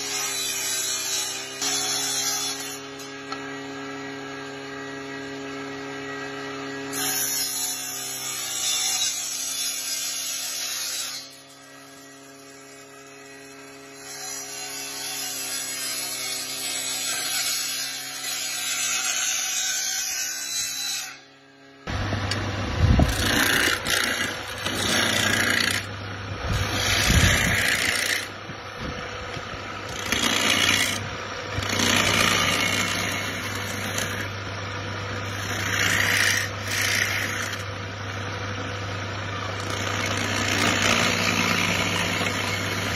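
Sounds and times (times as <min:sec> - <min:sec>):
electric wood planer running: 0:01.2 - 0:07.1, 0:21.8 - 0:42.9
electric motor hum: 0:21.5 - 0:42.9
hand tool scraping wood: 0:23.0 - 0:25.9, 0:26.5 - 0:28.3, 0:29.3 - 0:34.4, 0:35.2 - 0:37.7.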